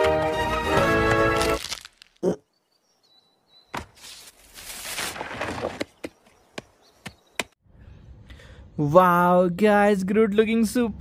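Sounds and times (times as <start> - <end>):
rustling noise: 3.9 - 5.9.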